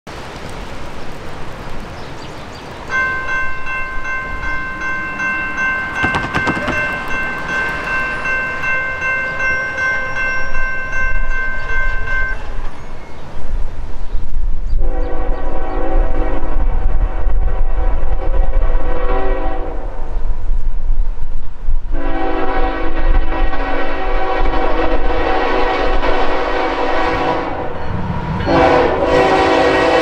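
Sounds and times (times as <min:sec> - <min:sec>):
crossing warning bell ringing: 0:02.9 - 0:13.2, 0:27.6 - 0:30.0
locomotive air horn chord: 0:14.8 - 0:19.9, 0:22.0 - 0:27.8, 0:28.4 - 0:30.0.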